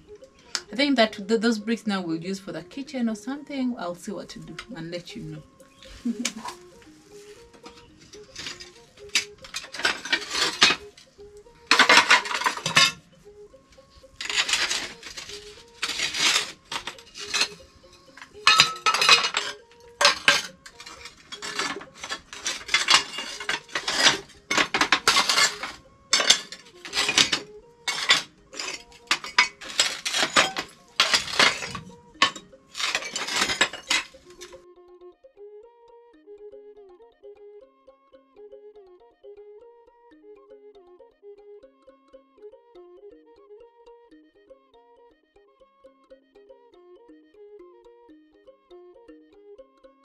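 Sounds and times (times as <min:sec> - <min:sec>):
tile pieces clinking: 0:14.2 - 0:17.6, 0:18.2 - 0:34.5.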